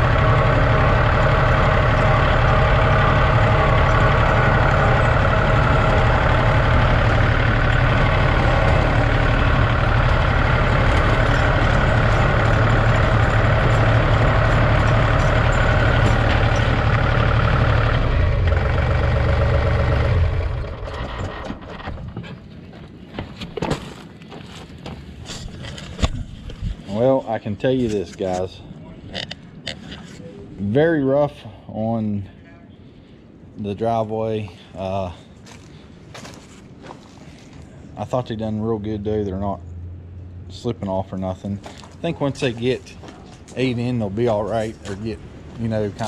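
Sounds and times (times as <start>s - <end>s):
chained tires driving: 0.0s - 22.4s
tractor diesel engine running: 0.0s - 22.7s, 34.5s - 46.0s.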